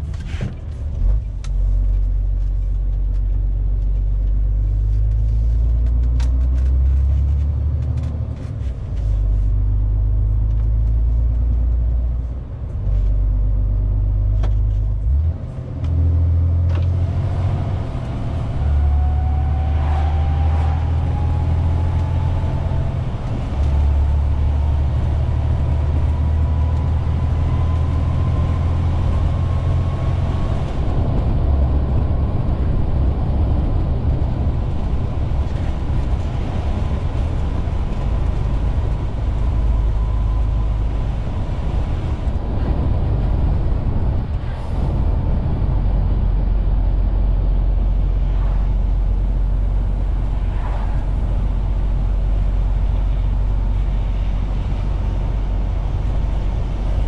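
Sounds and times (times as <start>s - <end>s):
truck diesel engine droning: 0.0s - 57.0s
faint whine: 17.6s - 57.0s.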